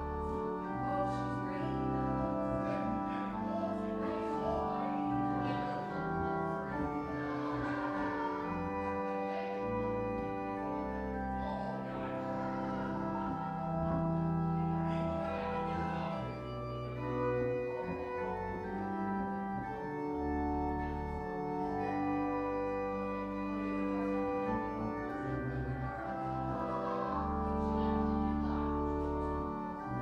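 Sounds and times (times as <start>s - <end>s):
organ playing slow chords: 0.0s - 30.0s.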